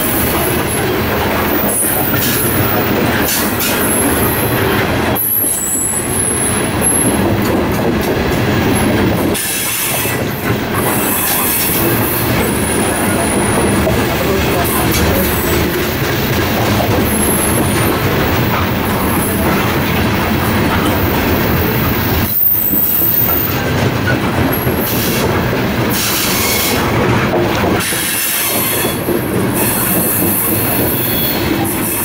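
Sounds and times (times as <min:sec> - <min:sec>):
train wheels rumbling on rail: 0:00.0 - 0:32.0
high-pitched wheel squeals: 0:03.8 - 0:07.2, 0:30.0 - 0:32.0.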